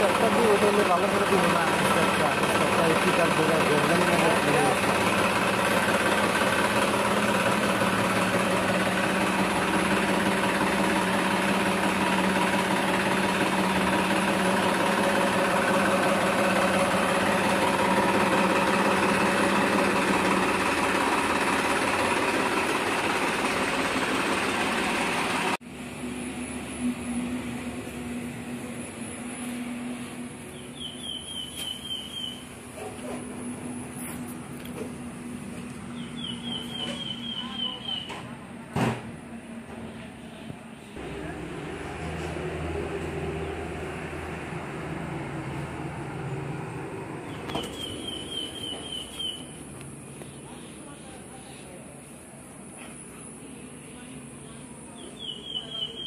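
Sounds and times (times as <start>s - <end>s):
tractor diesel engine running: 0.0s - 56.0s
bird chirps: 30.5s - 32.6s, 35.9s - 38.2s, 47.2s - 50.8s, 54.9s - 56.0s.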